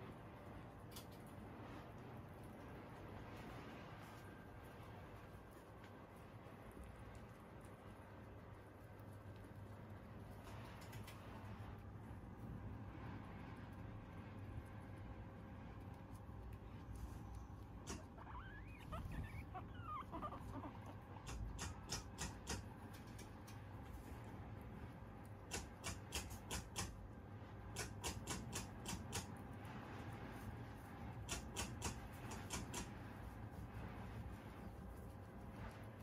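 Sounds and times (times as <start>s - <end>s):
guinea pig squeaking: 15.8s - 24.1s, 27.8s - 36.0s.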